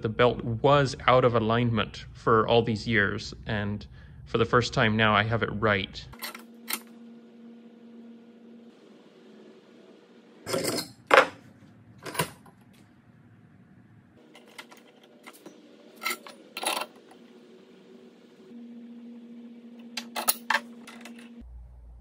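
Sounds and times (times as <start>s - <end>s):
steel parts clanking: 6.2s - 6.9s, 10.5s - 11.3s, 14.2s - 17.2s, 20.0s - 21.4s.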